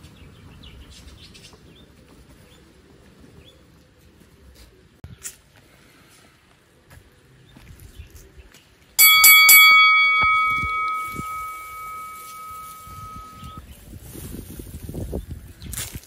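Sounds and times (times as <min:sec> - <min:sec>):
bell ringing: 0:09.0 - 0:13.6.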